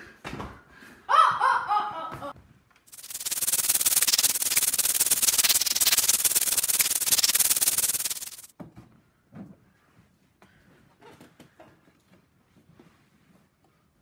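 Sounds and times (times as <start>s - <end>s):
loud steady hissing: 2.9s - 8.5s.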